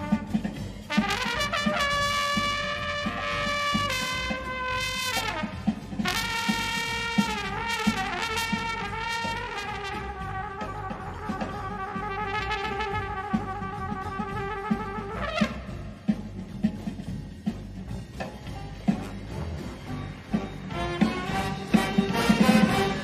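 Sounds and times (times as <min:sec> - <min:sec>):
solo trumpet long notes: 0:00.0 - 0:15.9
band accompaniment with steady beat: 0:00.0 - 0:23.0.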